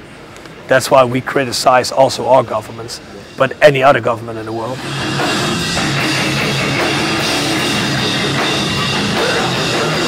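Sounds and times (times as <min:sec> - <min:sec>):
distorted electric guitars: 0:03.0 - 0:10.0
drum kit: 0:03.2 - 0:10.0.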